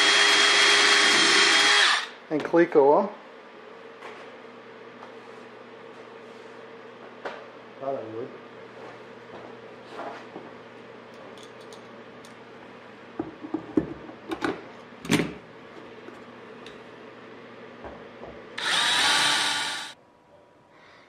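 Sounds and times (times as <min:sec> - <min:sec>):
cordless drill boring through metal: 0:00.0 - 0:02.2, 0:18.6 - 0:20.0.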